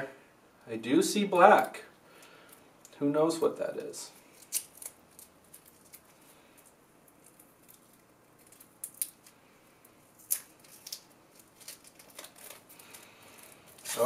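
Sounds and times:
foil and plastic wrap crinkling: 0:10.1 - 0:14.0.

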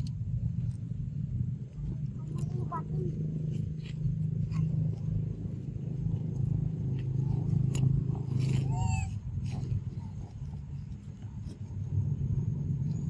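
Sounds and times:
low rumble: 0:00.0 - 0:13.0
baby monkey squeaking: 0:08.3 - 0:10.0.

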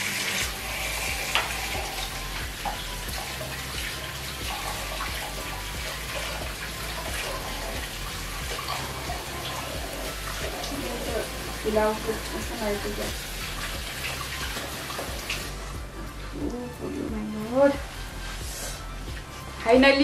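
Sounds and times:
batter deep-frying in oil: 0:00.0 - 0:15.9.

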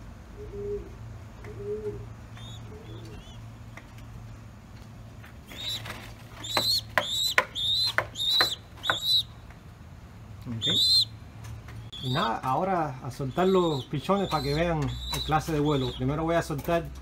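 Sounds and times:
pigeon cooing: 0:00.2 - 0:03.6, 0:10.5 - 0:11.1, 0:11.9 - 0:16.2
pigeon squab squeaky calls: 0:00.4 - 0:03.5, 0:05.4 - 0:09.4, 0:10.5 - 0:11.2, 0:11.8 - 0:16.2.

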